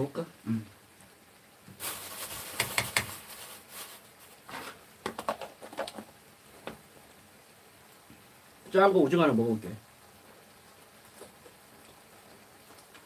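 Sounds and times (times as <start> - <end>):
plastic bag crinkling: 1.8 - 4.8.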